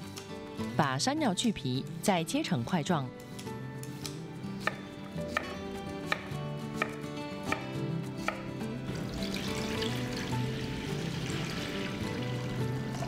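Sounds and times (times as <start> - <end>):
knife chopping on wooden board: 4.0 - 8.5.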